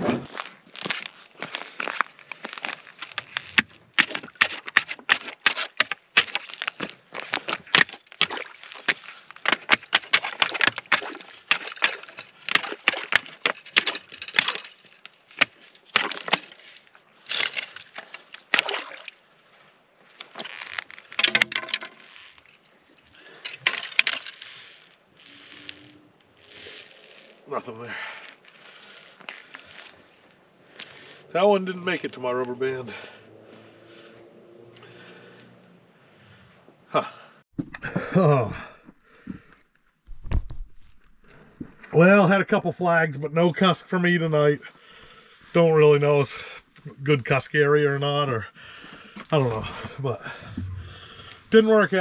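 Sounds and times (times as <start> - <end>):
ice skimmer crunching ice: 0.2 - 16.7
water sloshing: 3.3 - 19.3.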